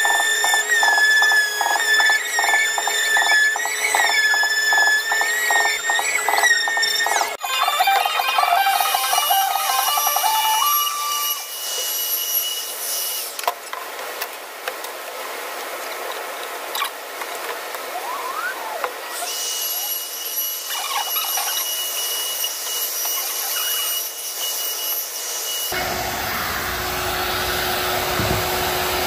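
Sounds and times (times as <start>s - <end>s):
wood router whining: 0.0s - 12.0s, 18.0s - 29.0s.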